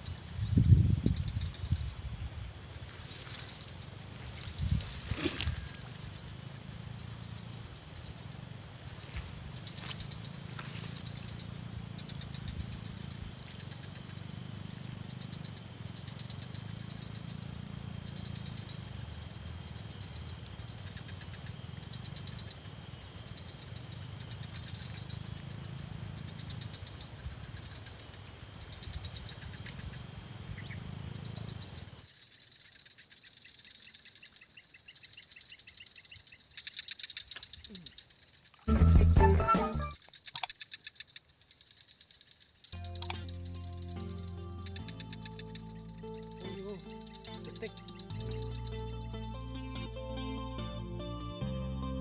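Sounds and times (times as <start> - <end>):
high-pitched insect drone: 0.0 - 38.8, 39.8 - 50.0
chirping trills: 5.4 - 22.6, 42.8 - 50.1
clicks: 40.3 - 40.5, 42.8 - 43.4.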